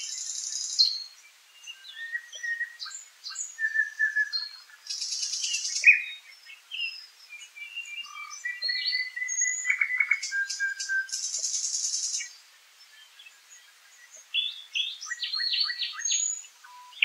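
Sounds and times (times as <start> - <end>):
songbirds singing: 0.0 - 17.0.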